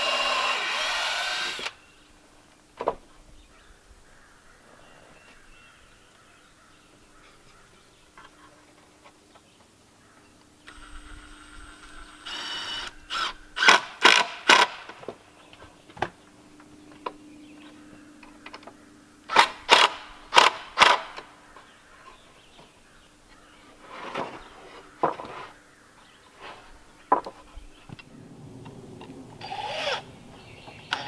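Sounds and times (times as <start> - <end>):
cordless drill driving screws: 0.0 - 1.8, 10.7 - 14.8, 29.4 - 30.0.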